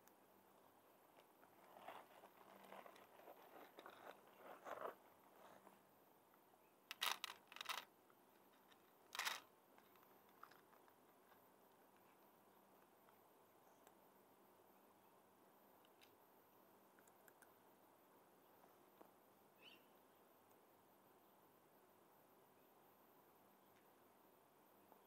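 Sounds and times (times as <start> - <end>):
cat crunching dry kibble: 6.9 - 7.8, 9.1 - 9.4.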